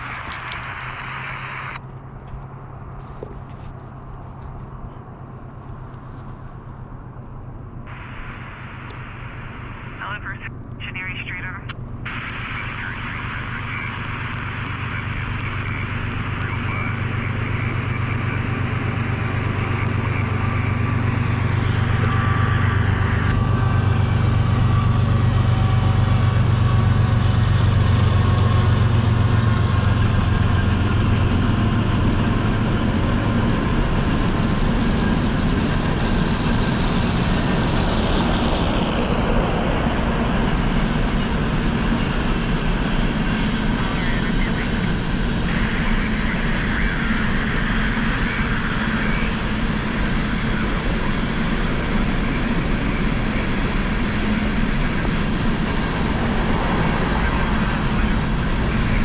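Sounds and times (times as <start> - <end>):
low engine hum: 0.0 - 59.0
train wheels rumbling on rail: 17.9 - 45.6.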